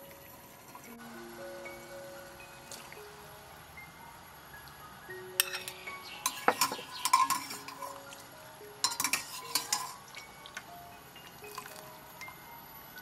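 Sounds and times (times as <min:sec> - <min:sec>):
soft music with chiming tones: 0:00.0 - 0:13.0
metal ladle scraping a pot: 0:05.4 - 0:08.0, 0:08.8 - 0:10.1.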